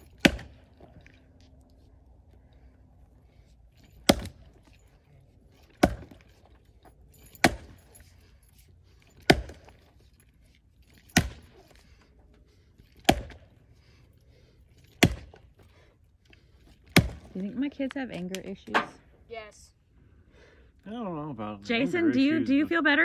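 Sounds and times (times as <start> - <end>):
axe chopping into log: 0.0 - 0.7, 4.0 - 4.5, 5.8 - 6.3, 7.4 - 7.8, 9.2 - 9.8, 11.1 - 11.6, 13.0 - 13.5, 15.0 - 15.4, 16.9 - 17.4.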